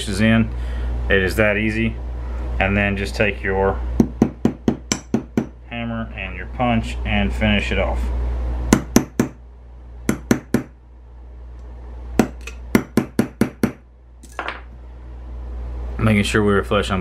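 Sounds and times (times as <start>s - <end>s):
hammer tapping metal punch: 4.0s - 5.6s, 8.7s - 9.4s, 10.1s - 10.7s, 12.2s - 14.7s.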